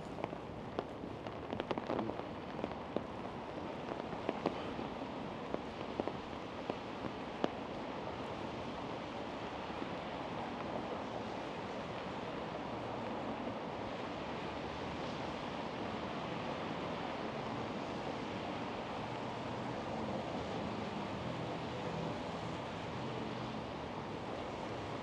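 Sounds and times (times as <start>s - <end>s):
raindrops ticking close by: 0.0s - 7.8s
steady rain: 0.0s - 25.0s.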